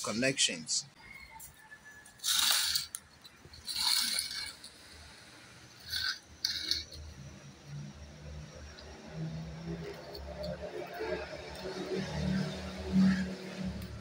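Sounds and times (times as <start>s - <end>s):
plastic pipe fittings scraping and knocking: 2.2s - 5.2s, 5.8s - 7.4s.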